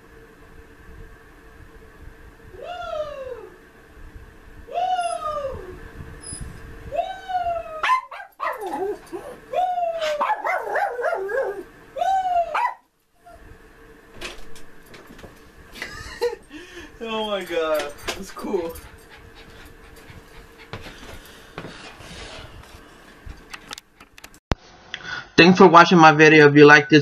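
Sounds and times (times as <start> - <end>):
small dog whining and howling: 2.5 - 3.6, 4.7 - 13.5
dog yelping: 4.9 - 5.8, 6.9 - 13.4.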